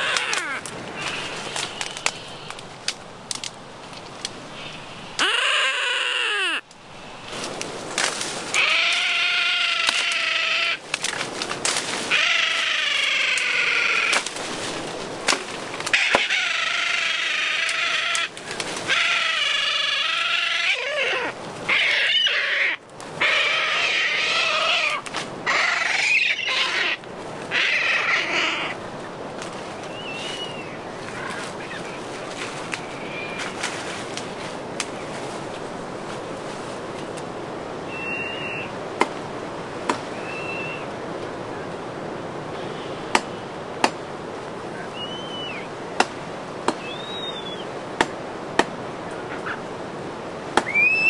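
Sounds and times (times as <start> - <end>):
seabirds crying harshly: 0.0 - 2.5, 4.6 - 6.7, 8.5 - 10.8, 12.1 - 14.2, 15.9 - 28.8.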